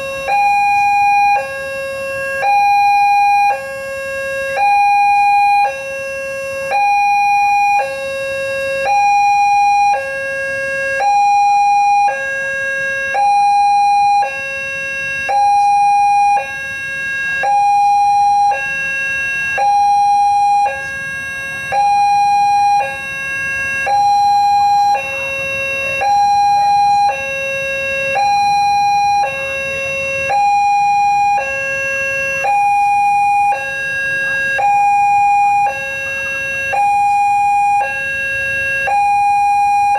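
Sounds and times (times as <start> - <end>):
two-tone level crossing alarm: 0.0 - 39.9.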